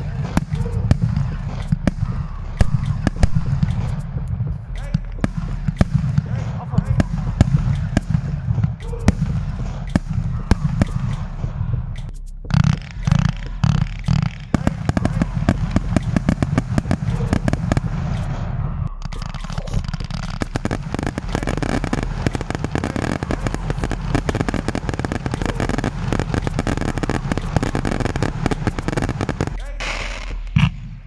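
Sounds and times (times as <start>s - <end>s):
fireworks crackling and popping: 0.0s - 31.0s
low rumble: 0.0s - 31.0s.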